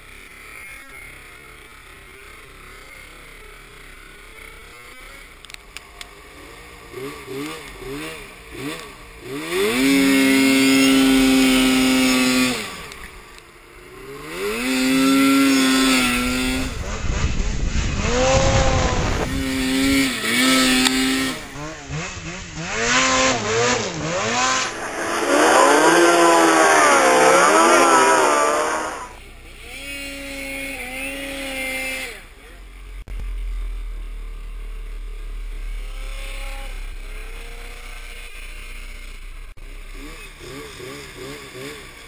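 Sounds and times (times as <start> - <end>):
snowmobile engines revving: 0.0 - 42.0.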